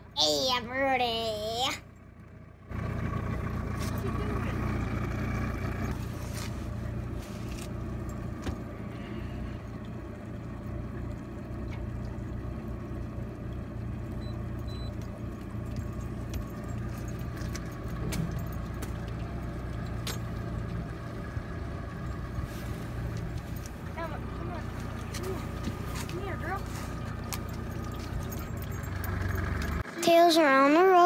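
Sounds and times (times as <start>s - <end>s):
boat engine humming: 0.0s - 31.0s
light metallic clicks and jingles: 15.0s - 20.7s, 23.1s - 29.8s.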